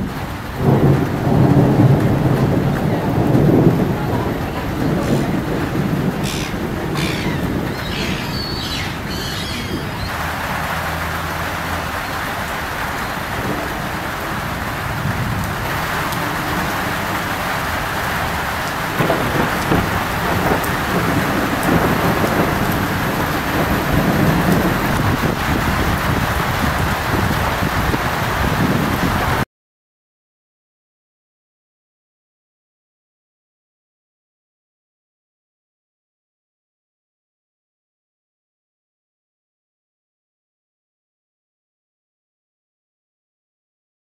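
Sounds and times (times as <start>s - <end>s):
heavy rain hissing: 0.0s - 29.4s
low thunder rumble: 0.0s - 29.4s.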